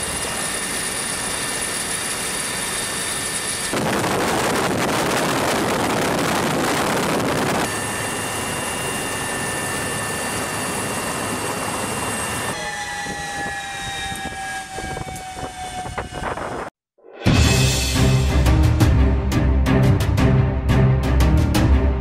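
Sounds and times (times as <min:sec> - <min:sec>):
helicopter rotor and turbine noise: 0:00.0 - 0:16.8
turbine whine falling in pitch: 0:00.0 - 0:16.8.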